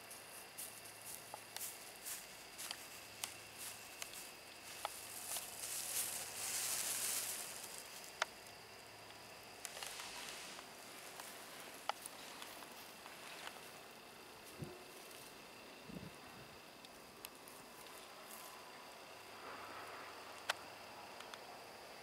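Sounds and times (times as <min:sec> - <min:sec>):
small ticks: 0:00.0 - 0:15.4, 0:16.8 - 0:18.6, 0:20.1 - 0:21.5
dry grass rustling underfoot: 0:00.0 - 0:15.9.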